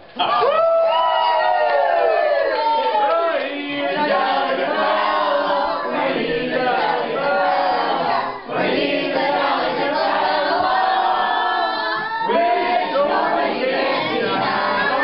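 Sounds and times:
group of people singing: 3.1s - 15.0s.

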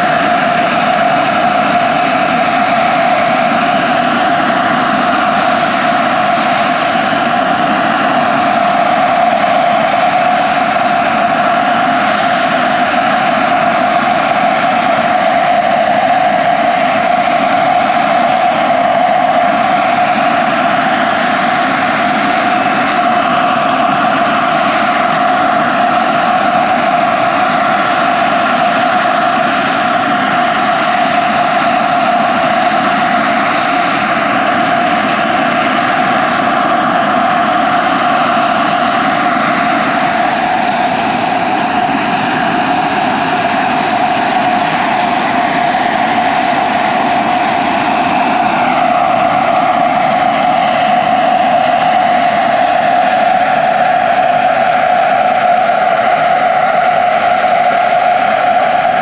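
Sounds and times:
helicopter rotor noise: 0.0s - 59.0s
model turbine whine: 0.0s - 59.0s.

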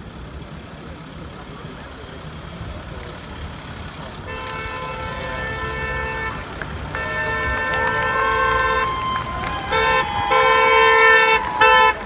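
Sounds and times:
street traffic rumble: 0.0s - 12.0s
car horns blasting: 4.2s - 12.0s.

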